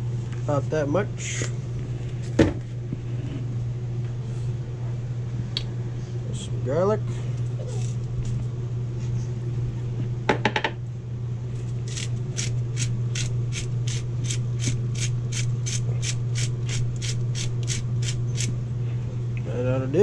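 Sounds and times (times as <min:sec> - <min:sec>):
steady low hum: 0:00.0 - 0:20.0
garlic grinder crunching: 0:11.6 - 0:18.6.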